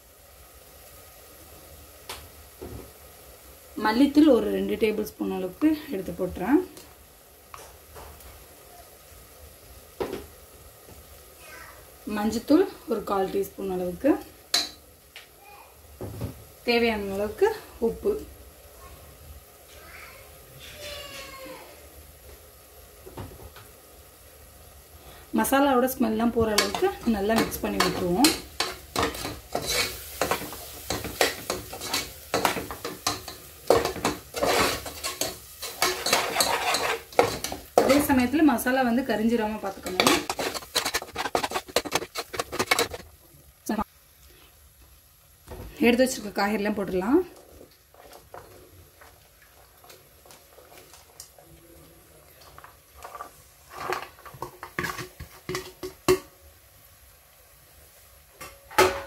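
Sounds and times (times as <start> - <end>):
masala sizzling: 0.0 - 59.0
spatula scraping metal pot: 26.6 - 38.2, 39.7 - 43.1
metal plate clinking on pot: 39.8 - 43.0
vegetables dropping into pot: 39.8 - 43.1.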